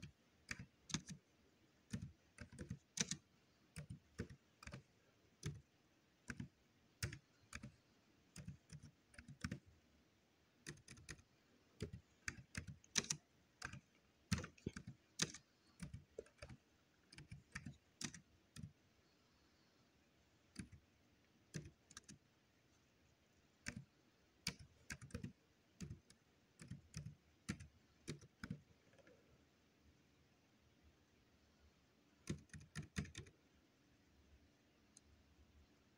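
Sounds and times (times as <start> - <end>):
laptop keyboard typing: 0.0 - 9.8, 10.5 - 18.8, 20.4 - 22.4, 23.5 - 29.2, 32.2 - 33.4.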